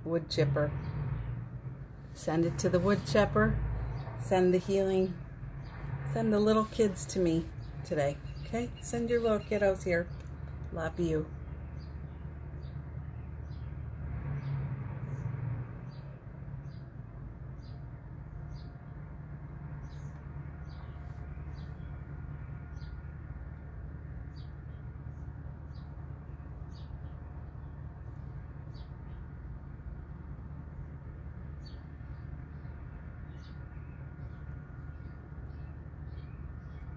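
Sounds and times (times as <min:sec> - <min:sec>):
bird chirping: 0:06.4 - 0:13.8.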